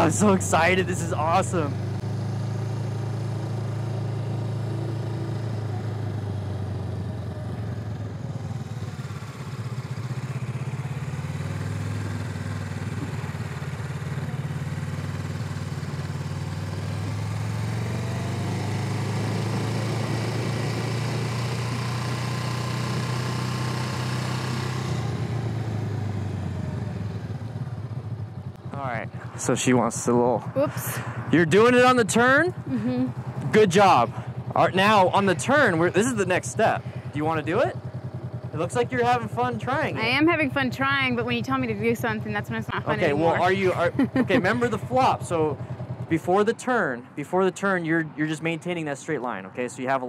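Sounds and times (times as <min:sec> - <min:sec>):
motorcycle engine running: 0:00.0 - 0:47.2.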